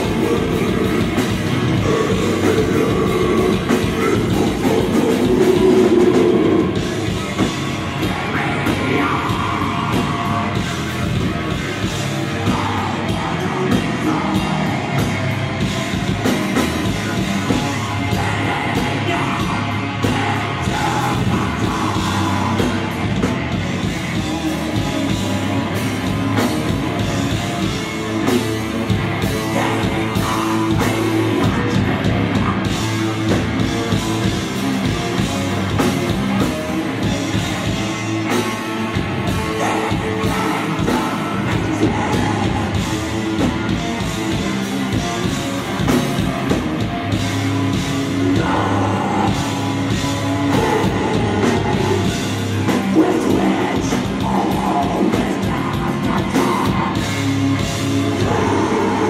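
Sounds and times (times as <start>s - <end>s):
vocalist singing into microphone: 0.0s - 16.0s, 16.8s - 23.3s, 29.2s - 34.2s, 37.0s - 43.8s, 47.7s - 59.0s
drum kit: 0.0s - 59.0s
electric guitar: 0.0s - 59.0s.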